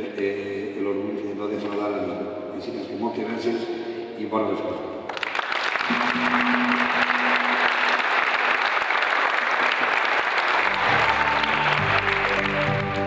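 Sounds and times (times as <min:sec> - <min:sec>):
audience applauding: 0:05.1 - 0:13.0
background music: 0:10.6 - 0:13.0.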